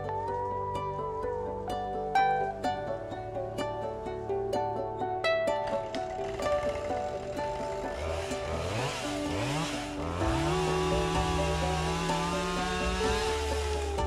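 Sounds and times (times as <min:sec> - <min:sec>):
light background music: 0:00.0 - 0:14.0
chainsaw engine revving: 0:05.8 - 0:14.0.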